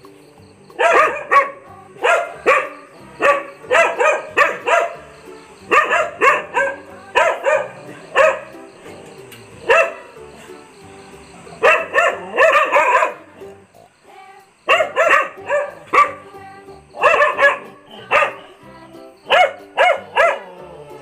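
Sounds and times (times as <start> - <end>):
quiet background music: 0.0 - 21.0
dog barking: 0.8 - 10.5, 11.3 - 13.5, 14.7 - 16.4, 17.0 - 18.6, 19.2 - 20.7.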